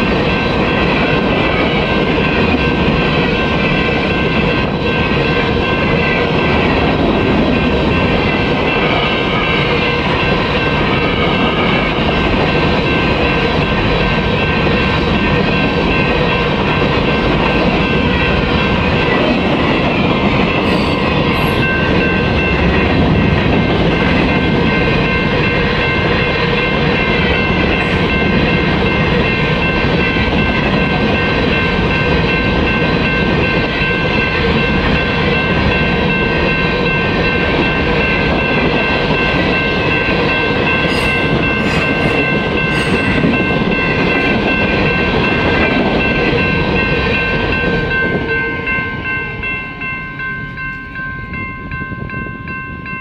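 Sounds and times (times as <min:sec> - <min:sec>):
crossing bell ringing: 0:00.0 - 0:53.0
freight train wheels rumbling: 0:00.0 - 0:53.0.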